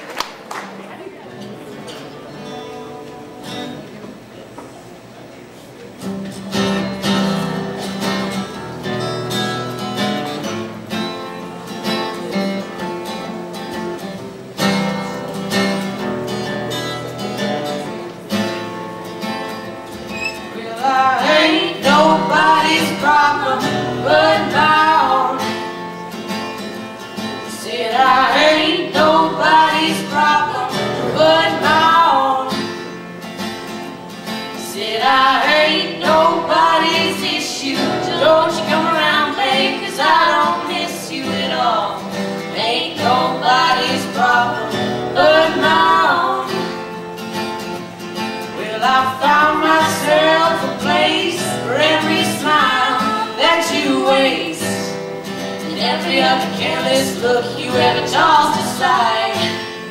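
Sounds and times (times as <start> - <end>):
acoustic guitar strumming: 1.3 - 3.9, 6.0 - 59.9
girl singing: 20.5 - 25.6, 27.5 - 32.6, 34.6 - 46.8, 48.6 - 55.0, 55.6 - 59.6.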